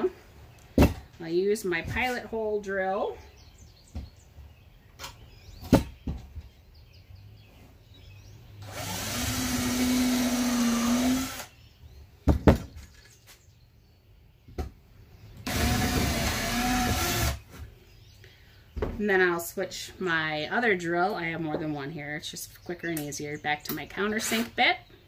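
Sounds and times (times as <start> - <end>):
power drill whining: 8.6 - 11.5, 15.4 - 17.4.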